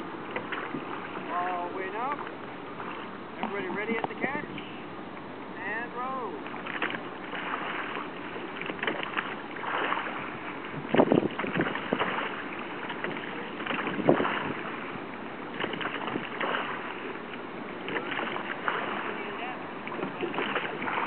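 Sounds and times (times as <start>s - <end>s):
oars in oarlocks: 0.0s - 21.0s
oars pulling through water: 0.0s - 21.0s
wind on microphone: 10.1s - 16.9s.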